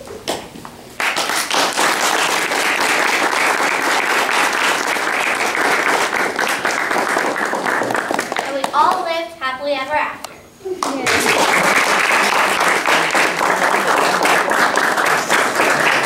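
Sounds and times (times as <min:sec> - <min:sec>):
audience applauding: 0:01.0 - 0:08.7, 0:10.8 - 0:16.0.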